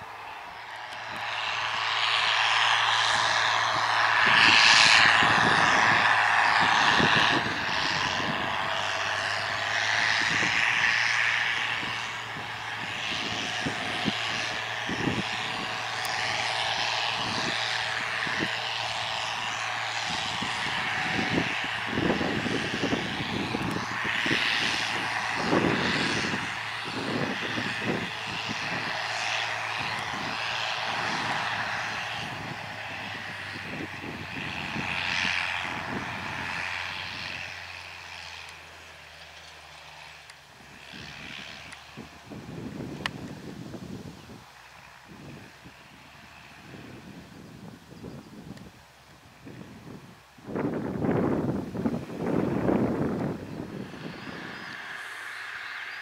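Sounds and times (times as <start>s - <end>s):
tractor diesel engine: 0.0s - 56.0s.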